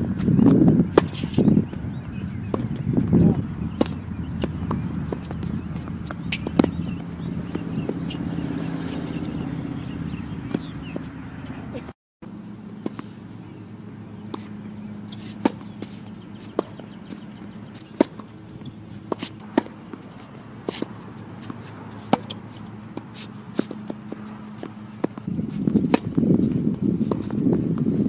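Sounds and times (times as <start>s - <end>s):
steady low hum: 0.0s - 28.0s
racquets striking tennis ball: 0.1s - 11.6s, 12.7s - 28.0s
ball bouncing on hard court: 0.2s - 9.9s, 15.4s - 27.9s.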